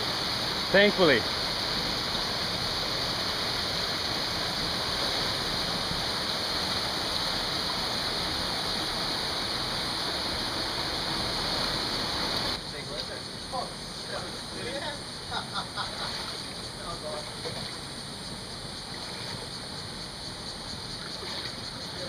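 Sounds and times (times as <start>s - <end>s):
stream rushing over rocks: 0.0s - 12.6s.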